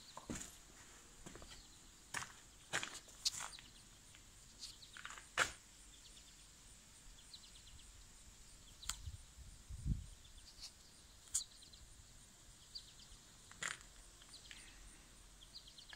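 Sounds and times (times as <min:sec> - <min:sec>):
faint bird chirps: 0:02.6 - 0:05.0, 0:05.9 - 0:13.6, 0:14.2 - 0:15.9.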